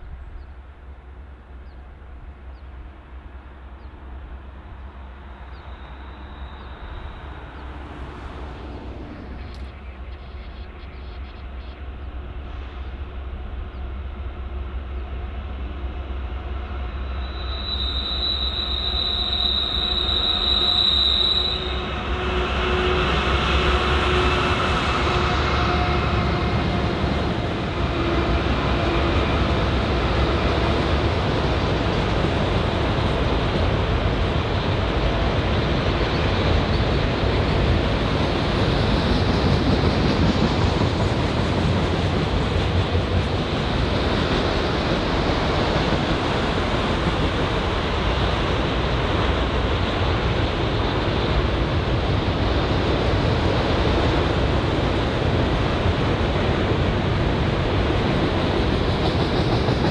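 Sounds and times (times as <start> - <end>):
freight train rumbling past: 0.0 - 59.9
high-pitched wheel squeal: 17.2 - 22.1.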